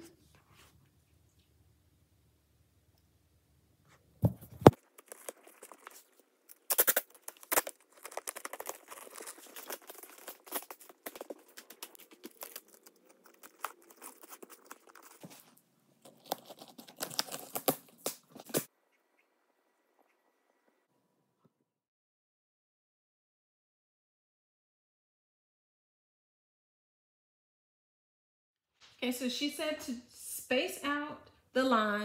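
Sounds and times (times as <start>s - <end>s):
duct tape ripping: 4.5s - 18.7s.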